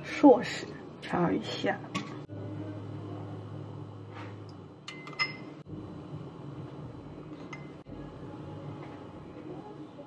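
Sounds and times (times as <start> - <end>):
spoon clinking ceramic bowl: 4.9 - 5.5.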